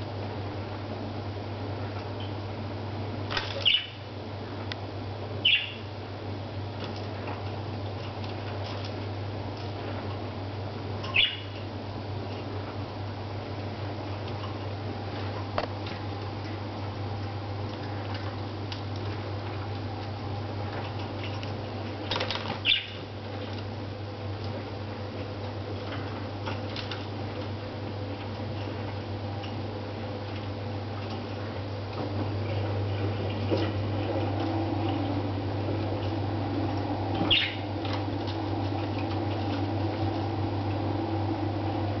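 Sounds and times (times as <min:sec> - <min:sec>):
steady low hum: 0:00.0 - 0:42.0
budgerigar chirps: 0:05.4 - 0:05.8, 0:11.1 - 0:11.6, 0:22.6 - 0:23.0, 0:37.3 - 0:37.6.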